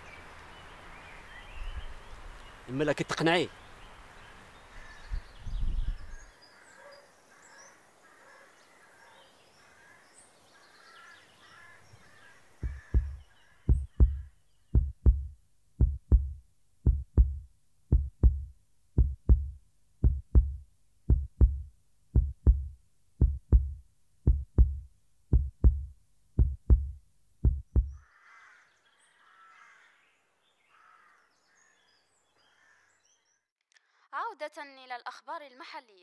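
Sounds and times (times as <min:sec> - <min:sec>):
faint birdsong: 0:00.0 - 0:21.6, 0:22.2 - 0:33.5
heartbeat thumps: 0:12.6 - 0:28.0.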